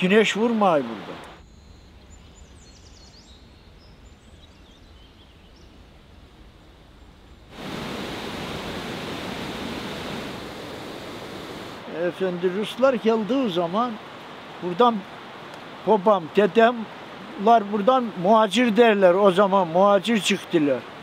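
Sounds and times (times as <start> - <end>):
steady rushing noise: 7.5 - 12.6.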